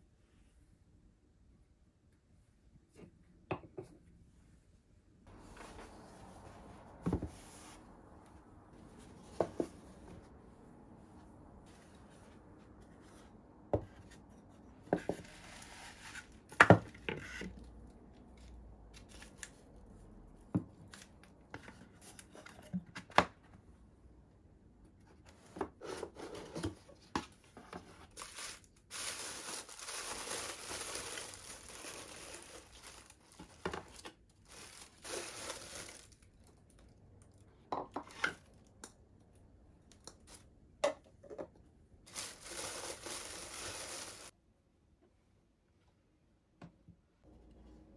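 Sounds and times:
tissue paper rustling: 0:05.3 - 0:13.4, 0:28.0 - 0:36.5, 0:42.1 - 0:44.4.

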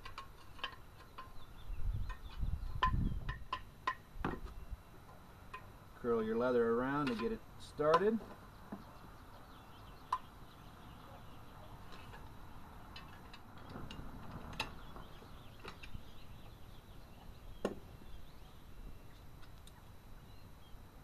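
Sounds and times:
clicks of metal pump parts: 0:00.0 - 0:01.4, 0:07.0 - 0:08.2
faint bird chirps: 0:08.5 - 0:13.0.

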